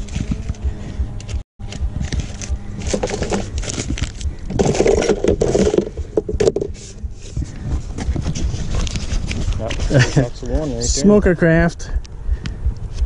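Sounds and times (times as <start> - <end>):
items scraping in a bag: 2.0 - 6.0.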